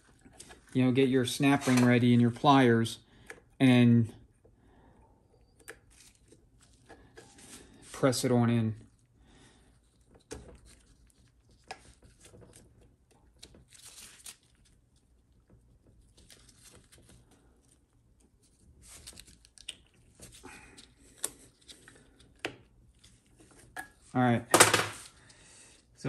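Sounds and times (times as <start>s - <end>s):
rustling of gloved hands: 5.4s - 26.0s.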